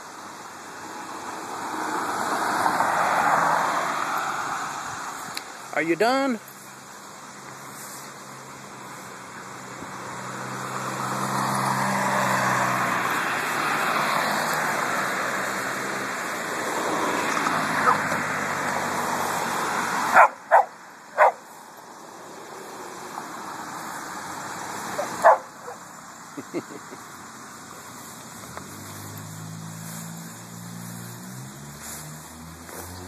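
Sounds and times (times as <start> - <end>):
vehicle passing: 0.5 - 33.0
small dog barking: 17.8 - 18.1, 20.1 - 21.5, 25.0 - 25.8.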